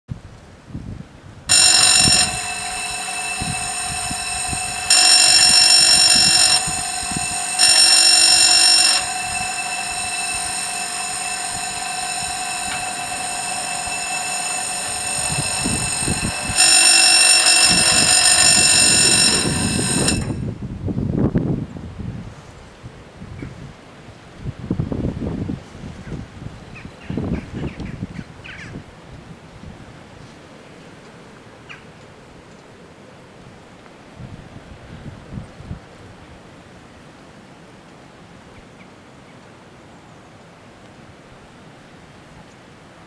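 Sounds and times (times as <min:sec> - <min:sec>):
level crossing bells ringing: 0:01.5 - 0:20.4.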